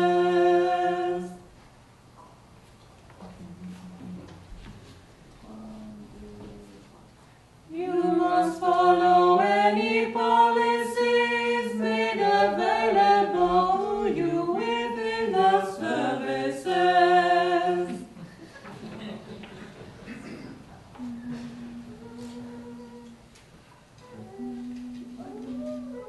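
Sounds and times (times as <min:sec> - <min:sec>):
vocal trio singing: 0:00.0 - 0:01.5, 0:07.7 - 0:18.2, 0:21.0 - 0:23.3.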